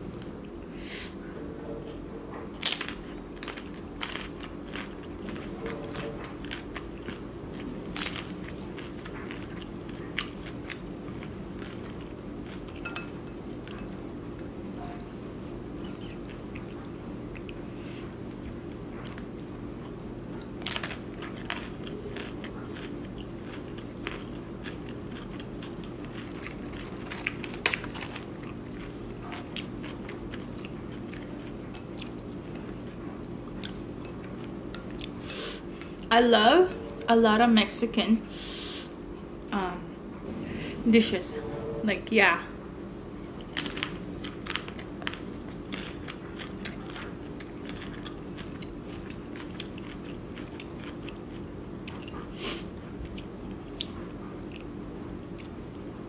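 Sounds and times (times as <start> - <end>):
steady low hum: 0.0 - 56.0
chewing: 2.4 - 14.0, 15.8 - 35.2, 43.4 - 55.8
tostadas crunching when bitten: 20.4 - 31.5, 43.4 - 52.2.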